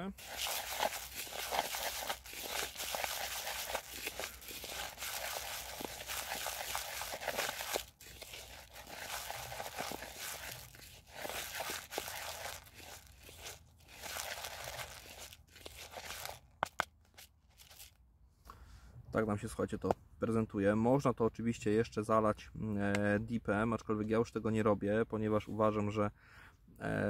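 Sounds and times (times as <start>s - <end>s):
pellets and seeds stirred in bowl: 0.0s - 17.9s.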